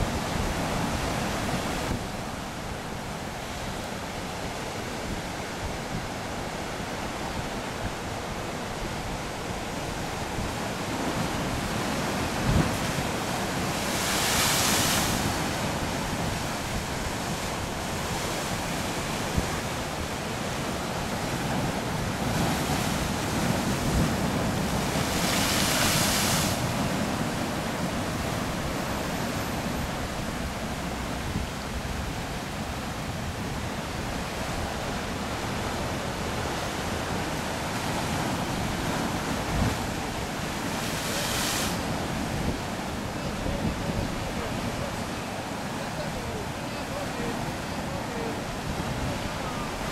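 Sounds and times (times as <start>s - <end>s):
surf washing over rocks: 0.0s - 49.9s
waves crashing: 0.0s - 49.9s.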